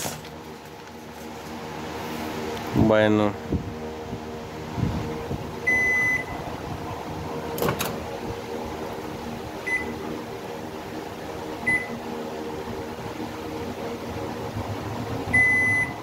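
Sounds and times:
steady low hum: 0.0s - 16.0s
microwave beeps: 5.6s - 6.4s, 9.6s - 10.0s, 11.6s - 12.0s, 15.3s - 16.0s.

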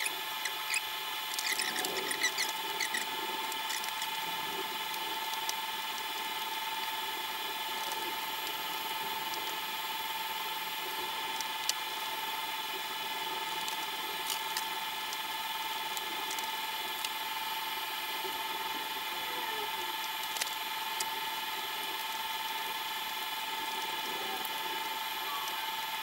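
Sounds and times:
steady tonal hum: 0.0s - 26.0s
plastic parts clicking and tapping: 16.0s - 17.2s, 20.0s - 21.1s.

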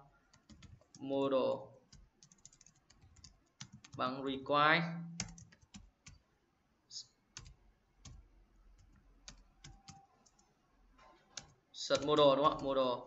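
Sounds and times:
keyboard typing: 0.2s - 1.0s, 1.8s - 4.0s, 5.0s - 6.2s, 7.4s - 10.5s, 11.2s - 12.8s.

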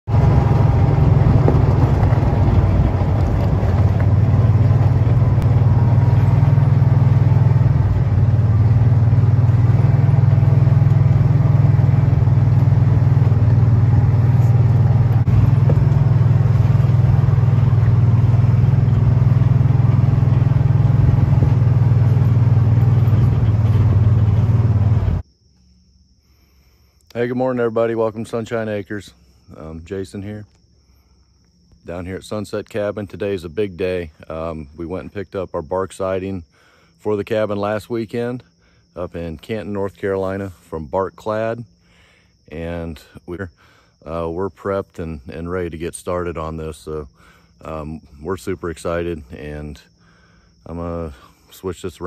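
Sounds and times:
utility vehicle engine driving: 0.0s - 25.2s.

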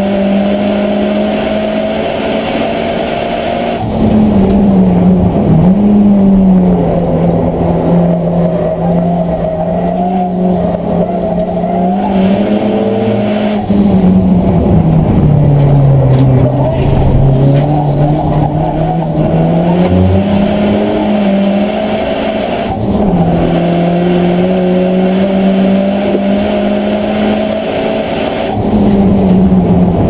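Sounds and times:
race car engine running hard: 0.0s - 30.0s.

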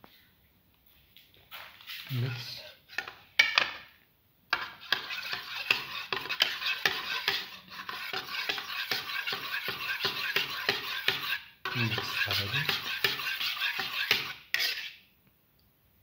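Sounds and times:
spoon scraping and clinking bowl: 4.5s - 15.0s.

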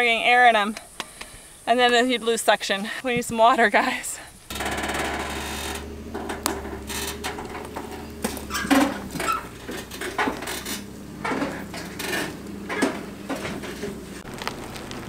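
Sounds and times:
low engine hum: 4.5s - 15.0s
trailer rattling and clanking: 4.5s - 15.0s.

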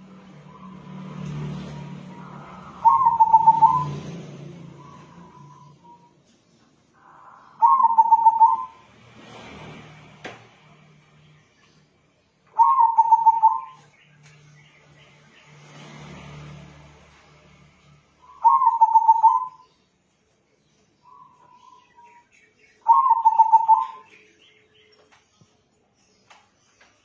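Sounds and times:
dove cooing: 1.7s - 4.1s, 7.0s - 8.8s, 12.6s - 13.8s, 18.4s - 19.6s, 22.8s - 24.1s.

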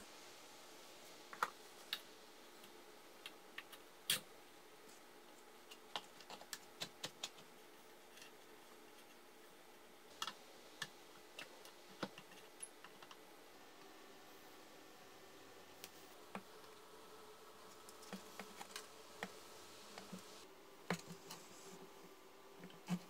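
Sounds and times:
fan parts clicking and tapping: 4.9s - 9.2s, 10.1s - 13.2s, 17.6s - 21.5s.

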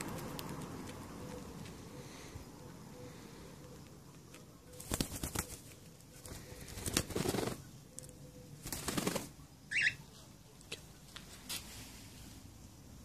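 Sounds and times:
bird wings flapping: 4.7s - 7.7s, 8.6s - 9.4s.

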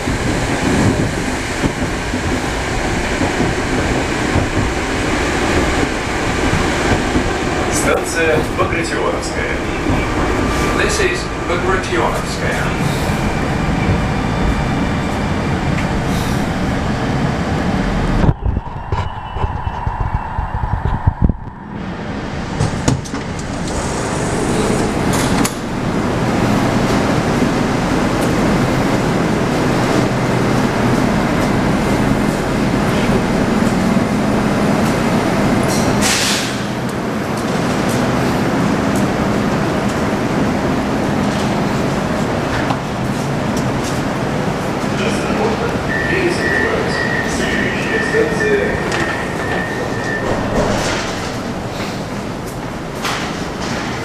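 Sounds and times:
metro train running and braking: 0.0s - 54.0s
sharp air hiss: 36.0s - 36.6s.

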